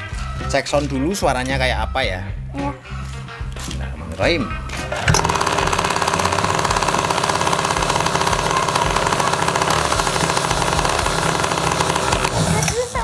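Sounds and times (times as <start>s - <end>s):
two-stroke engine buzzing: 4.9s - 12.8s.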